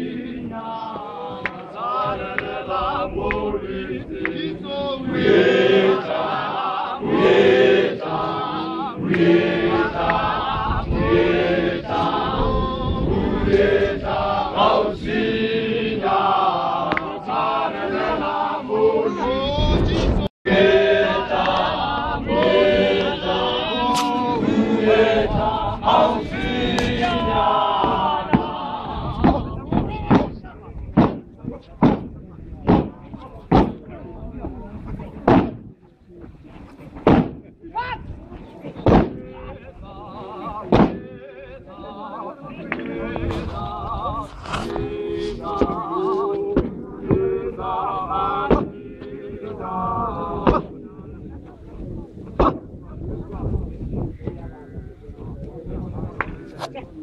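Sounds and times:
men's chorus singing in harmony: 0:00.0 - 0:29.8, 0:38.8 - 0:50.8
men chanting in unison: 0:00.0 - 0:29.9, 0:38.9 - 0:50.8.

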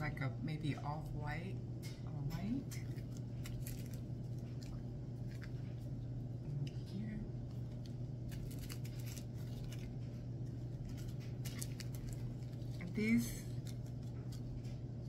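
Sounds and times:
plastic bags crinkling: 0:07.6 - 0:15.0.

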